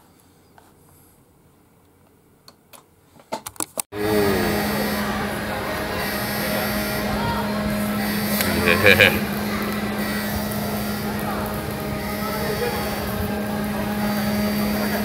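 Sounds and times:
crowd chatter: 0:04.0 - 0:15.0
steady machine hum: 0:04.0 - 0:15.0.

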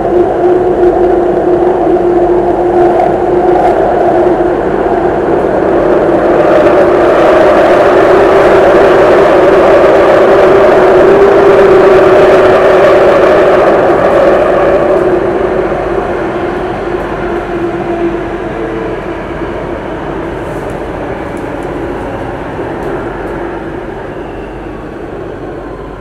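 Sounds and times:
train wheels on rails: 0:00.0 - 0:26.0.

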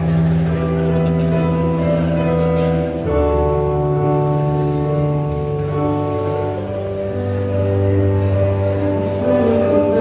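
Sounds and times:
electric keyboard chords: 0:00.0 - 0:10.0
low bass: 0:00.0 - 0:10.0.

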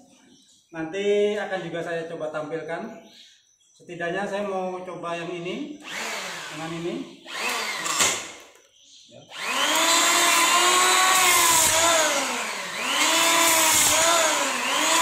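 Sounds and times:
electric hand planer planing wood: 0:05.9 - 0:08.3, 0:09.3 - 0:15.0.

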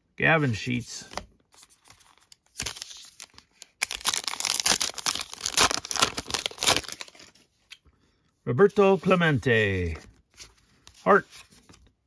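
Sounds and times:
wrapper rustling and tearing: 0:01.6 - 0:07.4.

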